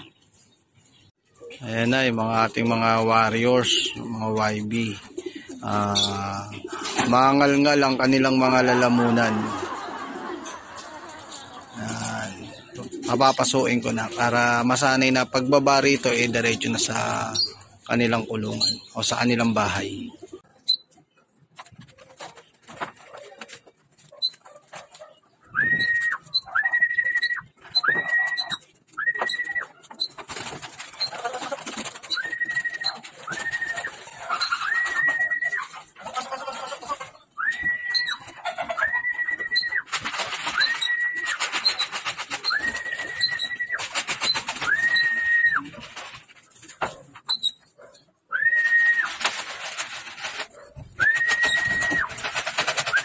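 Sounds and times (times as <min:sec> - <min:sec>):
rustling: 0:21.5 - 0:47.9, 0:48.5 - 0:53.0
pigeon wings fluttering: 0:21.6 - 0:36.0, 0:37.5 - 0:46.9, 0:48.6 - 0:53.0
person whistling: 0:25.5 - 0:29.7, 0:32.1 - 0:33.9, 0:37.4 - 0:38.2, 0:38.8 - 0:39.8, 0:42.5 - 0:43.8, 0:44.6 - 0:45.7, 0:48.3 - 0:49.1, 0:51.0 - 0:52.1
person whistling a held note: 0:25.6 - 0:29.6.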